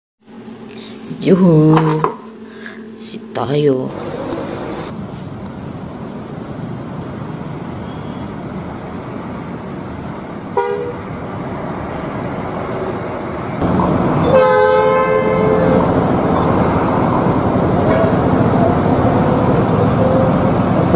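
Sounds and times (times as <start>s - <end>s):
road traffic noise: 3.7s - 20.9s
bus engine running: 3.9s - 20.9s
bus horn: 10.6s - 11.1s, 14.2s - 17.0s, 17.8s - 20.9s.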